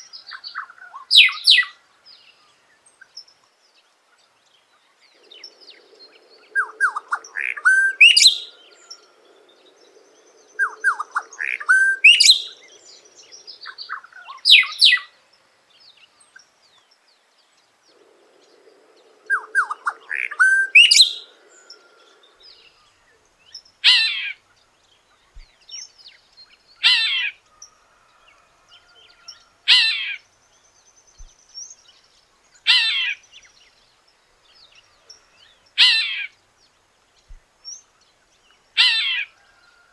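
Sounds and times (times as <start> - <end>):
bird singing rising notes: 5.1 - 15.0, 17.7 - 24.2
harsh bird calls: 5.1 - 15.1, 17.9 - 26.0, 26.7 - 30.4, 32.6 - 33.6, 34.8 - 36.4, 38.8 - 39.8.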